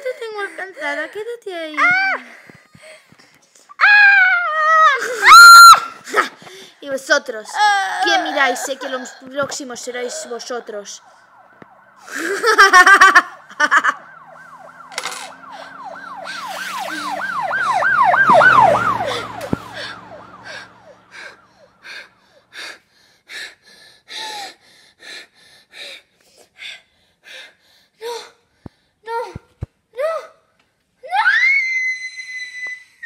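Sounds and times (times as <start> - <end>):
girl wailing: 1.8 - 2.3, 3.8 - 6.3, 7.5 - 9.3, 31.0 - 32.9
girl crying out: 1.8 - 2.4, 3.7 - 6.4, 7.5 - 9.3, 30.0 - 30.4, 31.0 - 33.0
girl panting: 2.1 - 3.7, 4.8 - 6.8, 7.5 - 10.6, 12.0 - 12.5, 15.4 - 17.4, 18.9 - 30.4.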